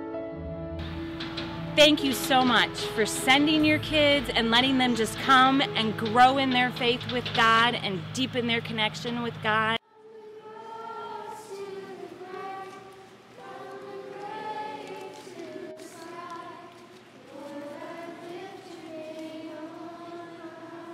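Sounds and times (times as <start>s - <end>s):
group of voices singing: 10.0s - 20.9s.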